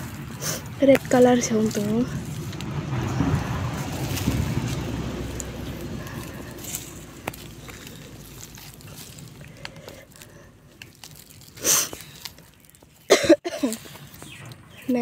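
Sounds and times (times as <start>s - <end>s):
soil and roots crunching and rustling: 0.0s - 15.0s
small cracks: 3.9s - 14.7s.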